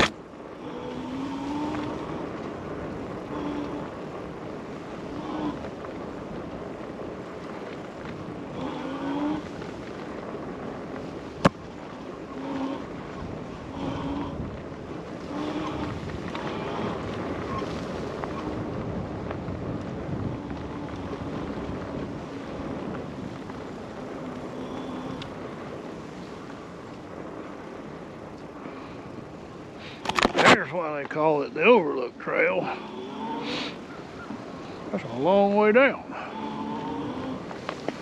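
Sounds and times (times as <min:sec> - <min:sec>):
tyre rumble: 0:00.0 - 0:27.5
low motor hum: 0:00.0 - 0:29.0
wind buffeting microphone: 0:00.0 - 0:38.0.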